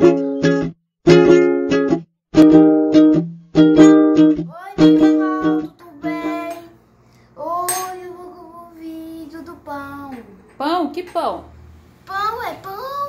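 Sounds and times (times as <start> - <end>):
girl speaking: 4.5 - 6.4, 7.4 - 10.5, 12.0 - 13.0.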